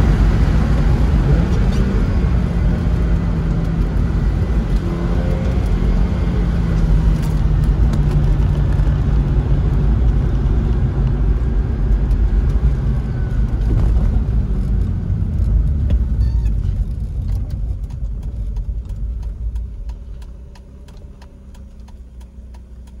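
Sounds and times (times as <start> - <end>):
car engine and road rumble: 0.0 - 23.0
turn signal clicking: 15.5 - 23.0.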